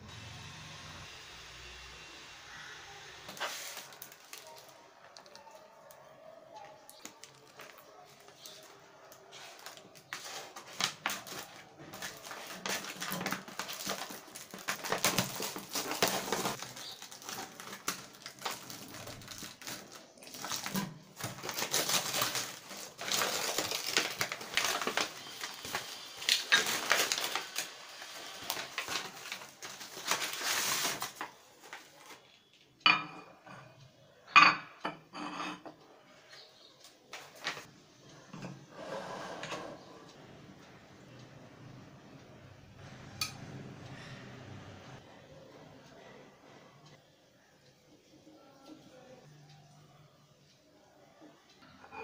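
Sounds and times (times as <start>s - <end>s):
packaging crinkling and tearing: 3.3s - 5.4s, 9.4s - 32.2s.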